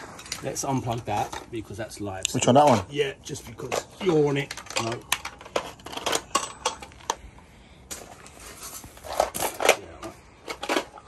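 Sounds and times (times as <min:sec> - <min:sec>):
metal tools clinking on concrete: 0:00.0 - 0:07.2.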